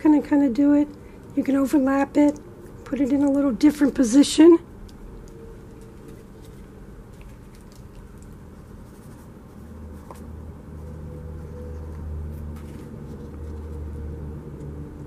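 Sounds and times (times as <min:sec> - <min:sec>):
low steady hum: 0:00.0 - 0:15.0
paper handling: 0:05.6 - 0:10.3, 0:11.4 - 0:14.0.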